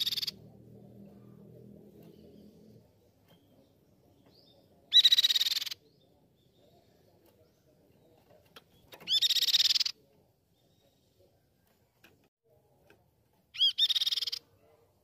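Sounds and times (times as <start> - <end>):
bird trilling calls: 0.0 - 0.4, 4.9 - 5.8, 9.0 - 10.0, 13.6 - 14.4.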